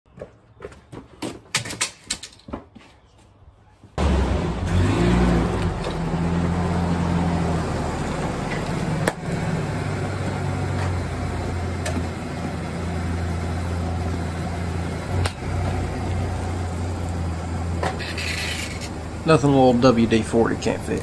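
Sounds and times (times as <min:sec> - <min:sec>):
truck engine idling: 0:04.0 - 0:21.0.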